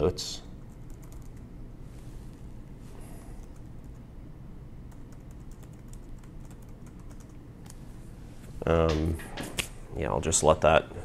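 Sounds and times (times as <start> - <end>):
steady low hum: 0.0 - 11.0
laptop keyboard typing: 0.6 - 1.4, 4.9 - 7.4.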